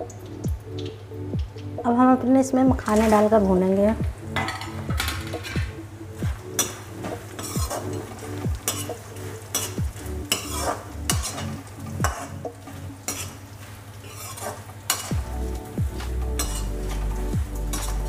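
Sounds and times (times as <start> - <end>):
light sizzle: 0.0 - 18.0
ladle scraping pan: 6.6 - 12.4, 14.0 - 15.1.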